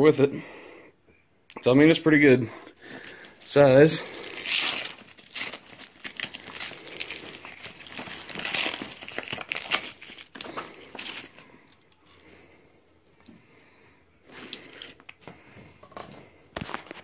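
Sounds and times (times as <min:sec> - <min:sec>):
fabric bag rustling and crinkling: 0:02.9 - 0:11.5.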